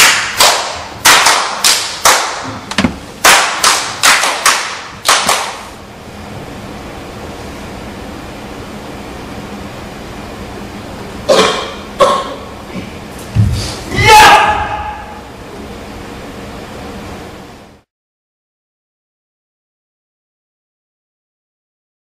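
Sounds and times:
sharp slaps or claps: 0:00.0 - 0:05.7.

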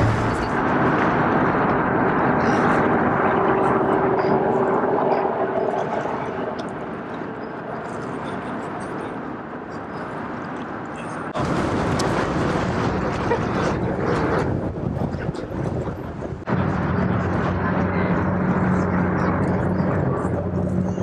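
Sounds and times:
rushing noise: 0:00.0 - 0:07.1
ferry engine drone: 0:00.0 - 0:21.0.

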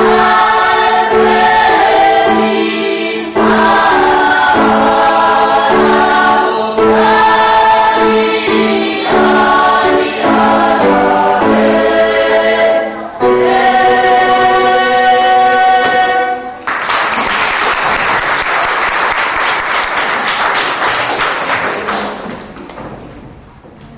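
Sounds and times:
children's choir singing: 0:00.0 - 0:16.7
audience applause: 0:16.6 - 0:22.5.

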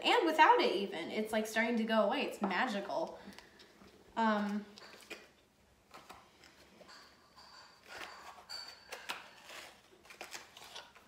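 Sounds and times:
packaging clicks and rustles: 0:07.8 - 0:11.0.

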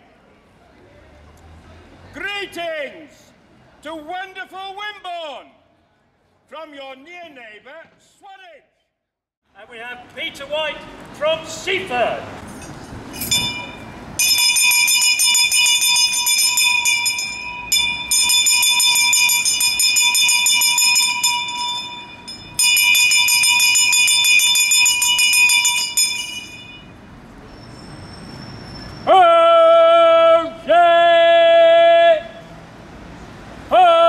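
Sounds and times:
hand bell ringing rapidly: 0:13.2 - 0:26.9
person shouting: 0:29.1 - 0:32.4, 0:33.7 - 0:34.0.

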